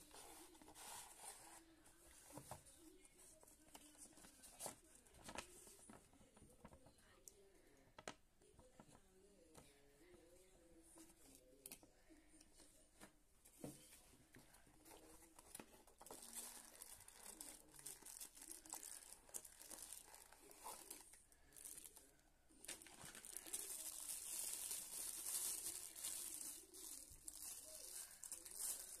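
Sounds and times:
plastic and paper packaging crinkling: 0:00.0 - 0:06.8, 0:13.6 - 0:29.0.

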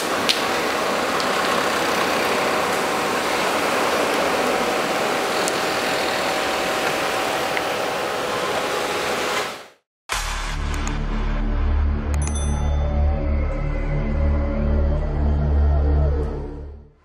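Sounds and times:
steady outdoor hiss: 0:00.0 - 0:09.7.

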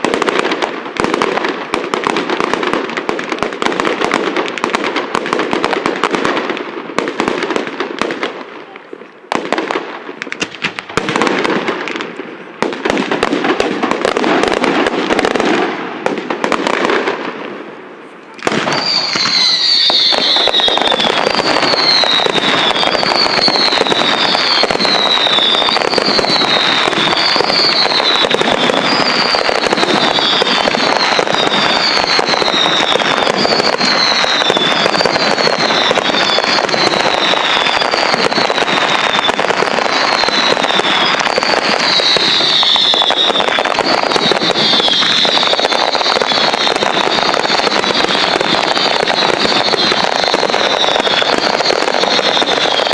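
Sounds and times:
fireworks bangs and crackling: 0:00.0 - 0:52.9
falling firework whistle: 0:18.2 - 0:52.9.

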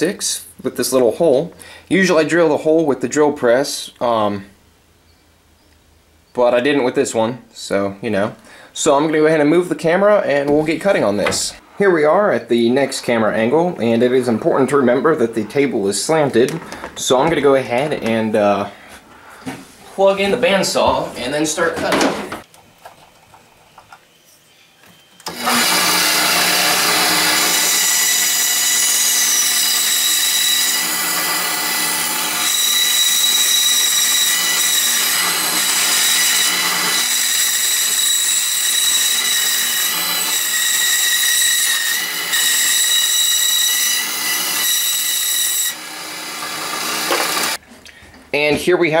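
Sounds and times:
band saw whining: 0:24.1 - 0:47.6
saw blade cutting wood: 0:25.2 - 0:47.6.

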